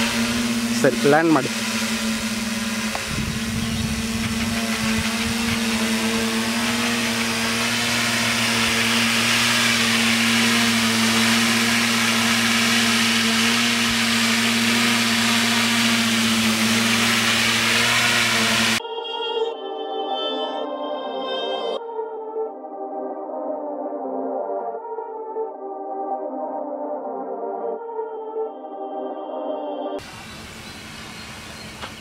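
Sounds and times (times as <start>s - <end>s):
propeller motors buzzing hum: 0.0s - 18.8s, 30.0s - 32.0s.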